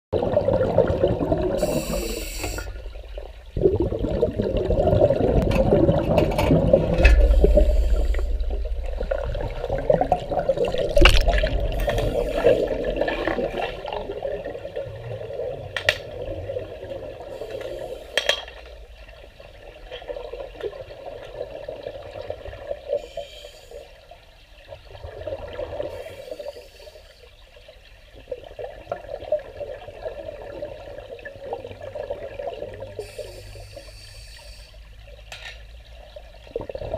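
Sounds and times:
deep underwater rumble: 0.2 - 18.1
air bubbling from regulator: 0.2 - 19.0.

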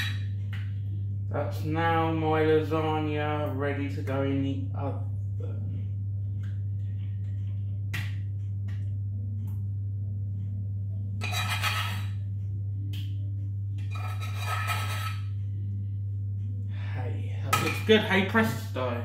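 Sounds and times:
steady low hum: 0.0 - 19.0
spoon scraping saucepan: 11.2 - 12.2, 13.8 - 15.3.

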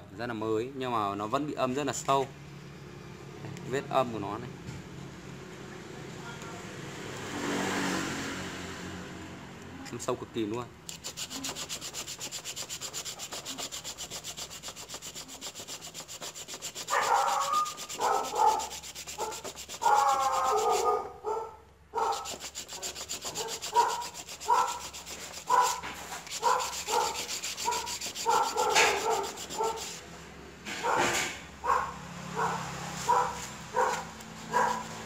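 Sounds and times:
sandpaper rubbing on metal: 10.9 - 21.0, 22.0 - 30.2, 32.9 - 35.0.

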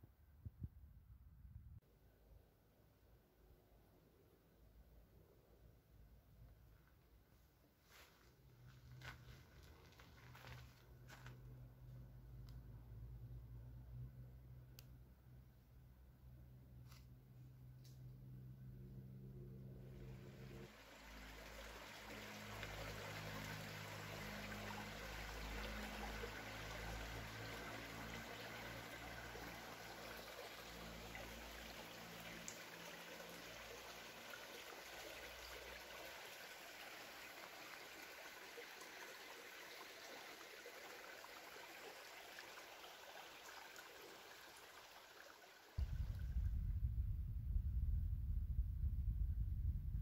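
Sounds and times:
stream trickling over rocks: 8.7 - 11.4, 20.0 - 45.8
low rumble: 45.8 - 50.0.

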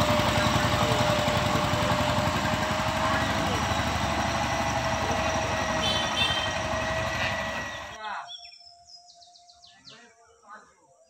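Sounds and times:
vehicle engine running: 0.0 - 8.0
birds chirping: 0.0 - 11.0.

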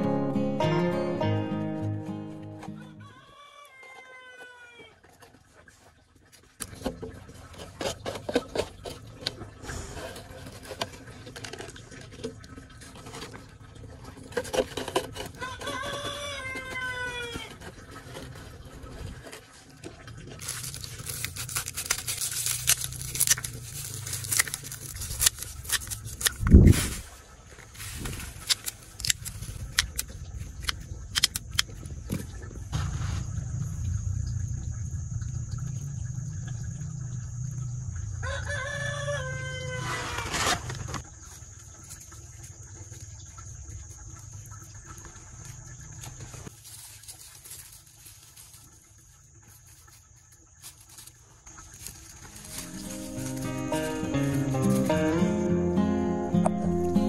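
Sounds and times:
scissors snipping dry leaves: 20.4 - 27.1, 27.8 - 30.1, 51.6 - 55.4
hands rustling in soil: 20.4 - 29.7, 46.5 - 57.0.

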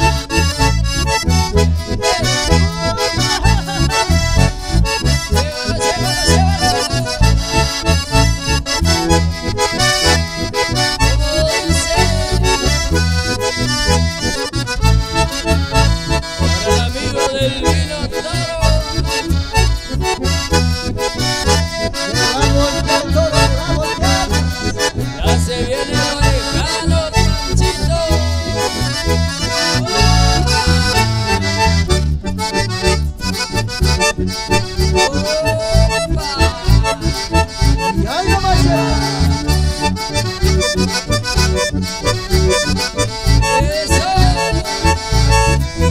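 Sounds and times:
accordion and bandoneon melody: 0.0 - 45.9
electric bass: 0.0 - 45.9
strummed acoustic guitar: 0.4 - 8.1.

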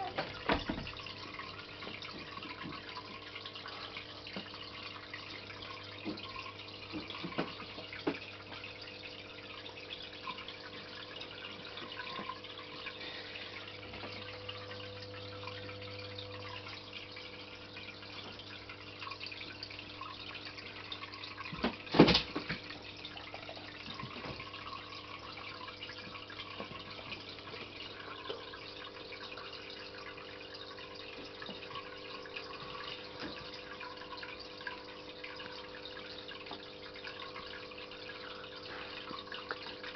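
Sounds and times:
filter low hum: 0.0 - 39.9
water trickling: 0.0 - 39.9.

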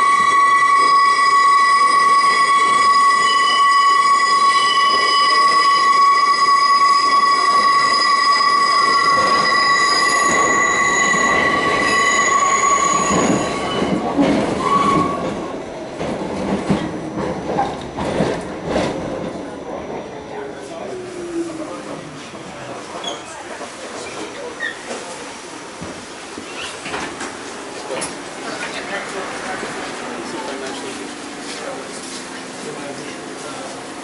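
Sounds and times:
train wheels squealing: 0.0 - 15.3
wheels clattering on track: 12.8 - 19.6.

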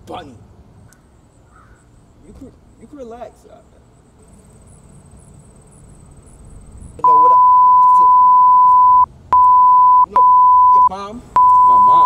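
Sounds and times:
censor bleep tone: 7.0 - 12.0.

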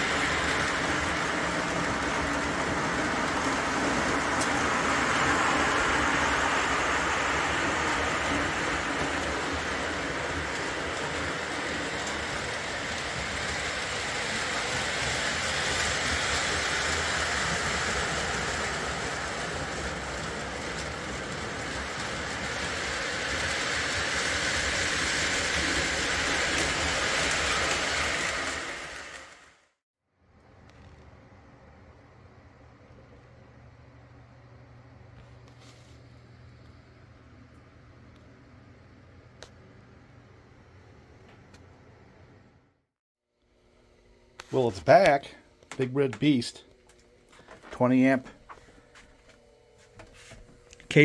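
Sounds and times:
wheels clattering on rails: 0.0 - 29.4
model train motors whirring: 0.0 - 29.6.

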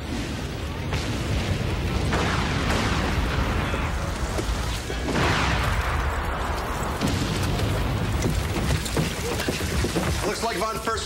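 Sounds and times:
large blast: 0.0 - 8.1
artillery shells exploding: 0.0 - 10.6.

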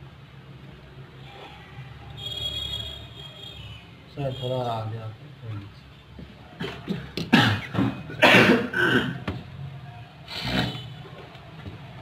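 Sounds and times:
person coughing: 6.6 - 9.2.

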